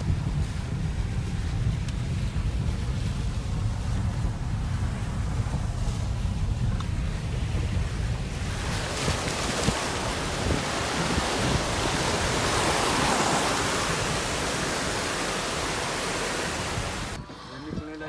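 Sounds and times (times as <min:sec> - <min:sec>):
car rumbling over stony road: 0:00.0 - 0:17.2
stream rushing over rocks: 0:08.1 - 0:17.2.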